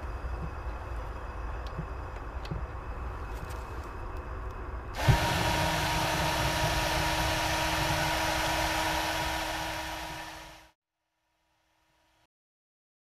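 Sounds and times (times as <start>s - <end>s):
turbojet constant whine: 0.0s - 10.8s
turbojet air rush: 5.0s - 10.8s.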